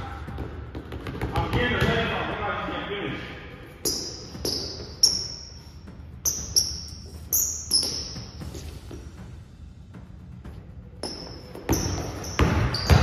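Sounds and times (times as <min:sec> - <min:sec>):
basketball bouncing on hardwood floor: 0:00.3 - 0:02.1, 0:11.0 - 0:13.0.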